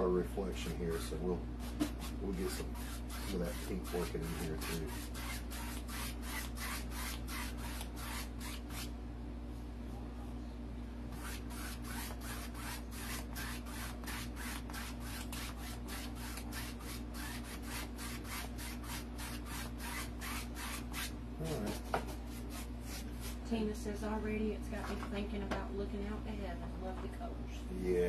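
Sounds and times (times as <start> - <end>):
paintbrush rubbing on canvas: 0.9 - 8.9, 11.2 - 23.5.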